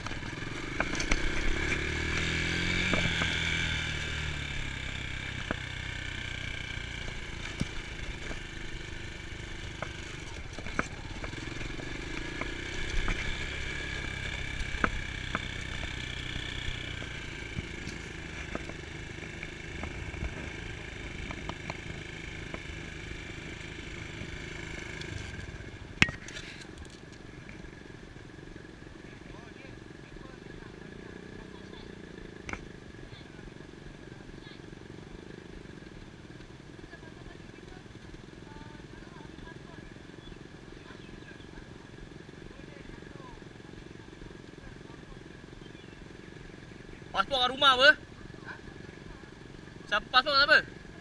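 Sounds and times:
dirt bike engine revving: 0.0 - 26.6.

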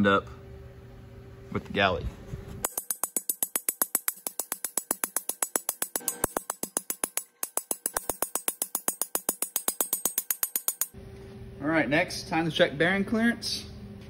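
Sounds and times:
fast ticking percussion beat: 2.7 - 11.0.

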